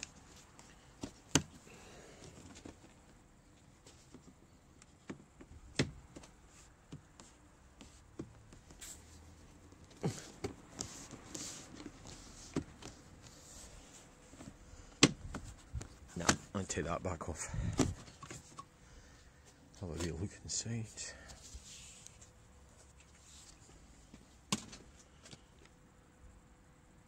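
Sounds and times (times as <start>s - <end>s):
rubbing and rustling: 2.2s - 16.7s, 21.3s - 25.4s.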